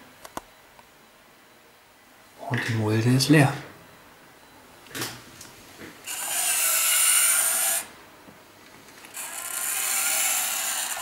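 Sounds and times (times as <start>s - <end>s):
small electric motor whining: 6.0s - 7.9s, 9.0s - 11.0s.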